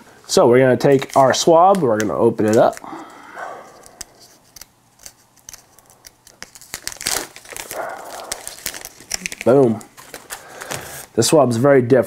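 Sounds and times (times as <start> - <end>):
wrapper crinkling and tearing: 0.8 - 3.0, 3.7 - 11.2.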